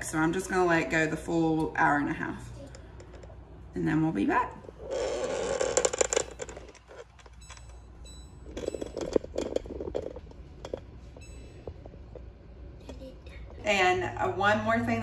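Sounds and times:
glass pot lid rattling: 8.5 - 10.9.

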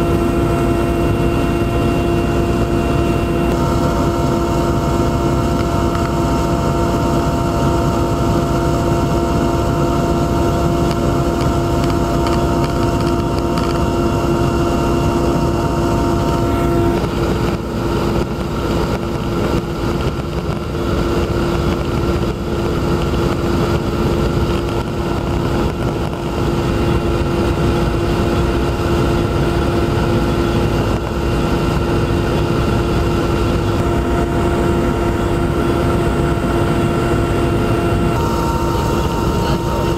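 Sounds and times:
aircraft engine drone in cabin: 0.0 - 39.9.

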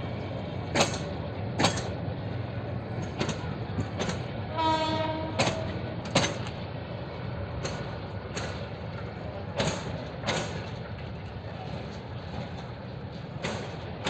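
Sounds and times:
low train rumble and hum: 0.0 - 14.0
train wheels clacking over rail joint: 0.7 - 2.0, 3.0 - 6.6, 7.5 - 11.0, 11.6 - 14.0.

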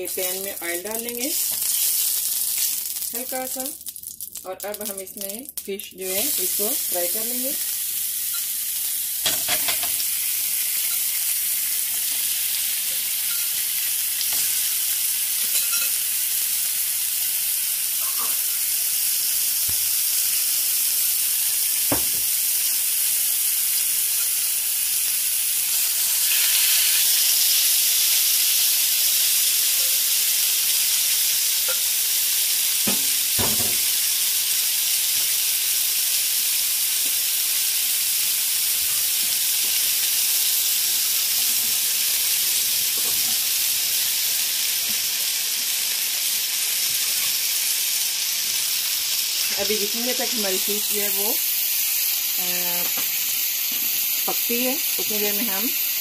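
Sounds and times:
fish sizzling in oil: 0.0 - 56.0.

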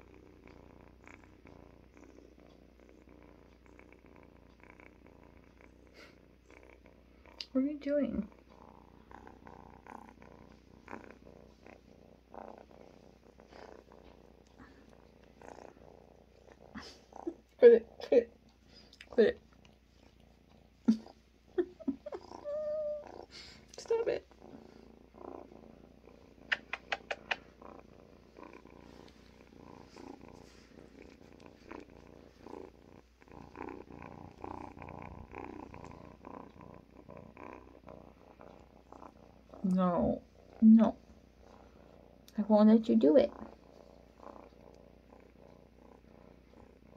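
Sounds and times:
kitten purring: 0.0 - 46.9
sharp clicks: 26.5 - 27.5.

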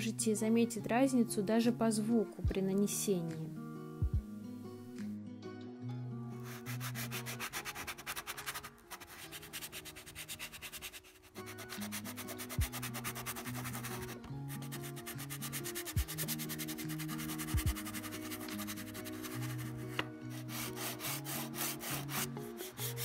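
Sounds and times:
pastel sticks scratching paper: 6.5 - 23.0.

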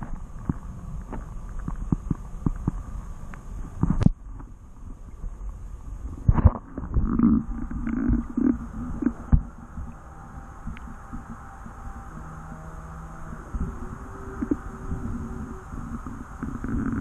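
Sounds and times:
muffled rumbling: 0.0 - 17.0.

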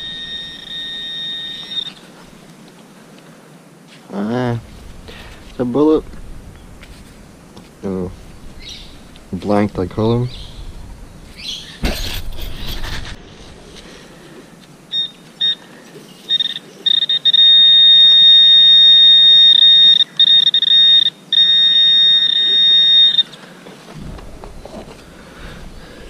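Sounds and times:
metal detector beeping: 0.0 - 2.2, 14.9 - 23.4
steady high detector tone: 0.0 - 2.4, 14.4 - 23.4.

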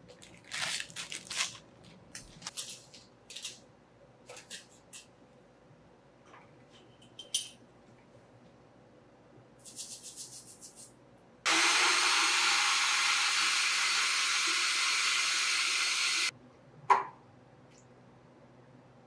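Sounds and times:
blender motor running: 11.5 - 16.3.

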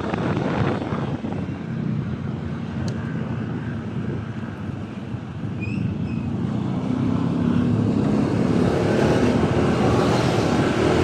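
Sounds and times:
wind rushing over microphone: 0.0 - 11.0.

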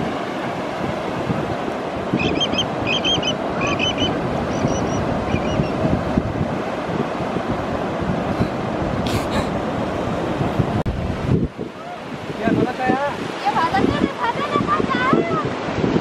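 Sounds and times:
ocean surf breaking: 0.0 - 16.0
bird calling squeaky notes: 2.2 - 5.8.

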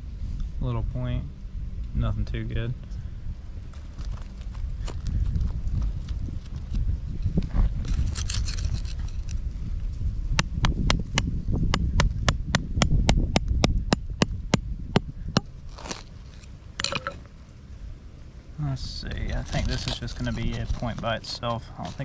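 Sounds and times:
hand tool striking clay: 10.4 - 16.0
hand tool scraping clay: 15.4 - 17.2, 19.2 - 22.0.

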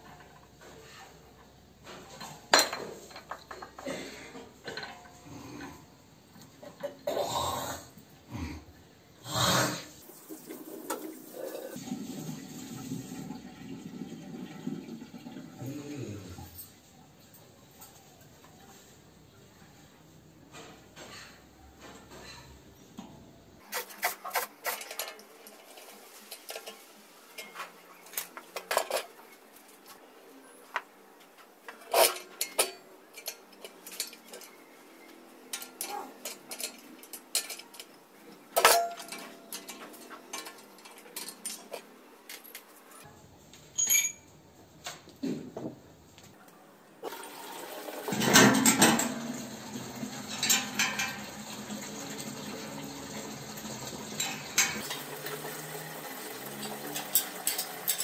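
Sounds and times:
metallic clinks and knocks: 43.7 - 44.3.

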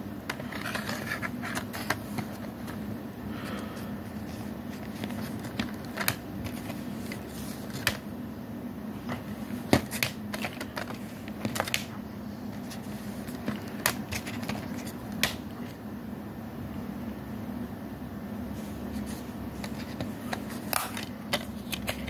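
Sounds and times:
steady low hum: 0.0 - 22.0
plastic case clicking and rattling: 4.7 - 8.0, 9.1 - 11.9, 12.6 - 15.5, 19.6 - 22.0.

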